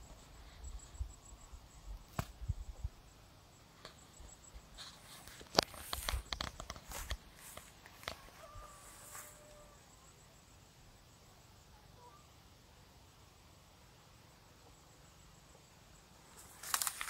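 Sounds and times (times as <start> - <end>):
stalks brushing rustle: 4.6 - 9.6, 16.3 - 17.0
footsteps on dirt path: 4.8 - 9.6.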